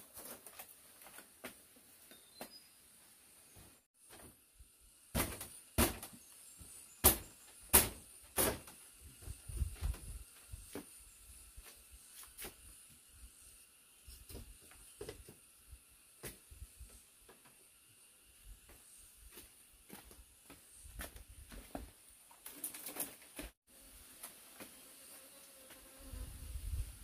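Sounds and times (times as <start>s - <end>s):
steady high hiss: 2.2s - 21.2s.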